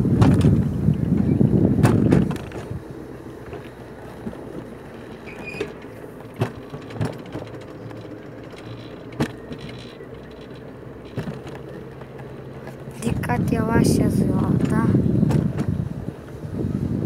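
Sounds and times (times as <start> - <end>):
coaster wheels rumbling on rails: 0.0 - 17.0
brief squeak: 5.2 - 5.7.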